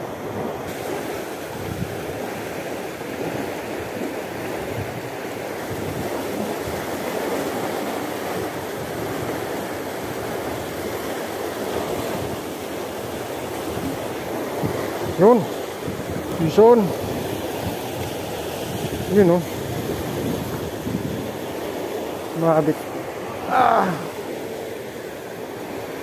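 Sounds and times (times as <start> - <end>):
fast-flowing water rushing: 0.0 - 26.0.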